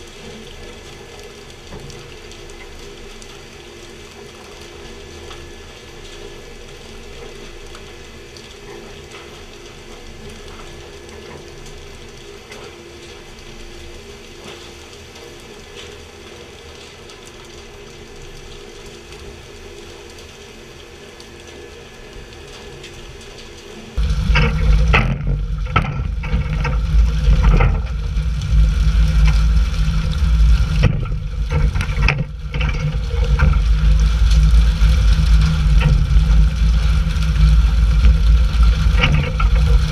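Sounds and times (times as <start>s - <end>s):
faint steady drone: 0.0s - 39.9s
water spraying over sea: 0.0s - 39.9s
knocks and thumps: 24.0s - 28.1s
loud low rumble: 24.0s - 39.9s.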